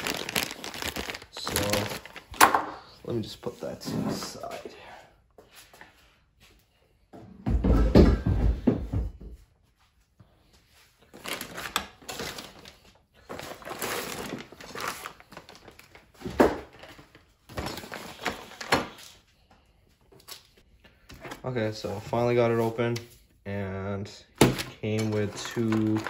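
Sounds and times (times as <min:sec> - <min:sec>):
plastic bag rustling and crinkling: 0:00.0 - 0:04.4, 0:11.1 - 0:19.0, 0:24.4 - 0:26.0.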